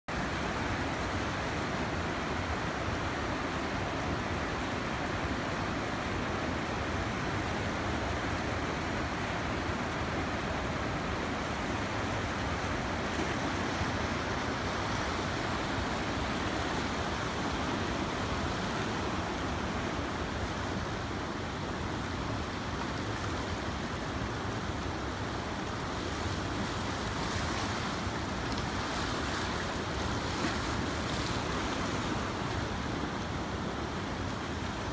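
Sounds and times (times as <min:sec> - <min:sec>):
river water roaring: 0:00.1 - 0:34.9.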